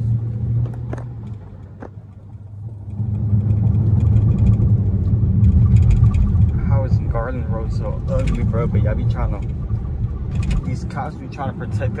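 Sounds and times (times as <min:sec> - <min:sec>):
car engine from inside cabin: 0:00.0 - 0:12.0.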